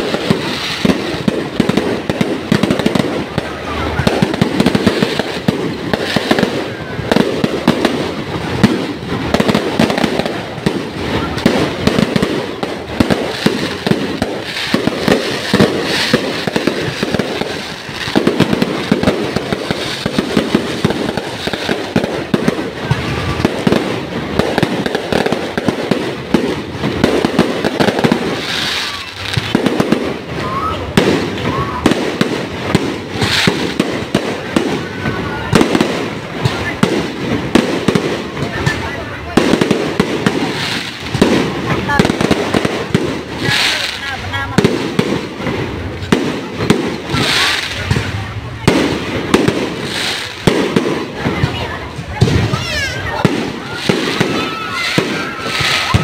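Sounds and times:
fireworks bangs and crackling: 0.0s - 56.0s.

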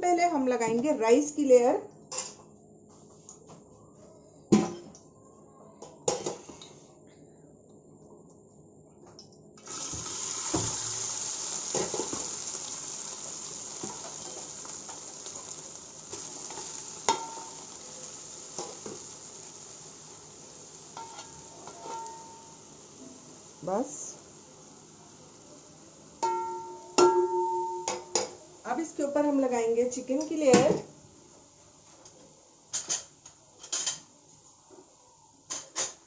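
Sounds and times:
rice sizzling in hot fat: 9.6s - 34.7s.

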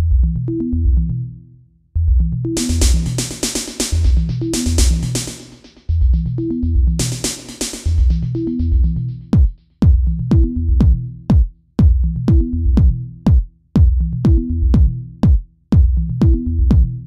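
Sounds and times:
electronic dance music: 2.6s - 5.9s, 7.0s - 8.5s
punchy kick drums: 2.6s - 17.0s.

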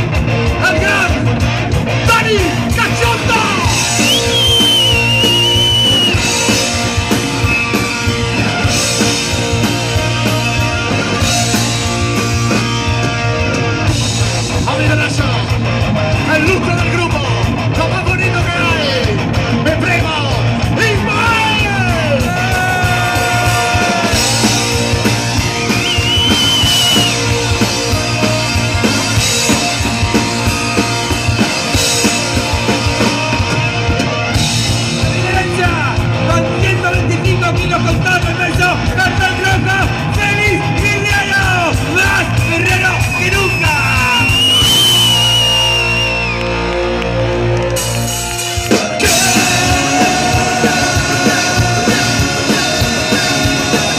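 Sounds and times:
punk rock band playing live: 0.0s - 53.9s
shouted vocals: 20.8s - 24.8s, 49.0s - 53.9s.

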